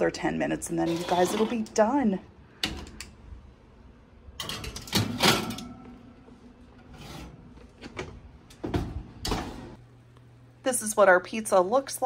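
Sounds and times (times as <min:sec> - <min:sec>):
metal pan scraping on oven rack: 0:00.7 - 0:01.8.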